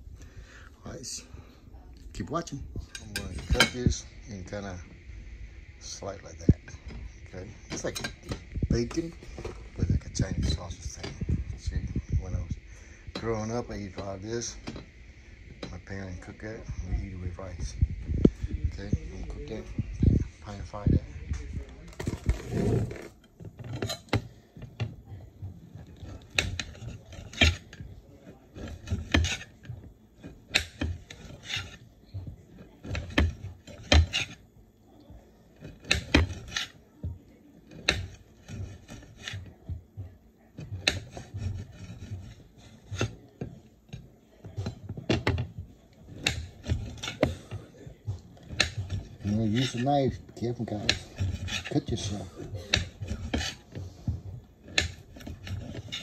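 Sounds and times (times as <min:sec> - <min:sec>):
knife scraping: 0:02.8 - 0:04.9, 0:06.9 - 0:15.0, 0:21.5 - 0:24.9, 0:25.5 - 0:34.4, 0:35.5 - 0:36.9, 0:37.6 - 0:39.8, 0:40.6 - 0:56.0.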